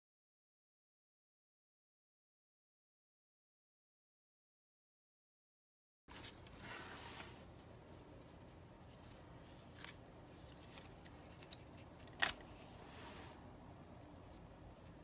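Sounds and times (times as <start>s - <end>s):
paper pages rustling: 6.1s - 13.3s.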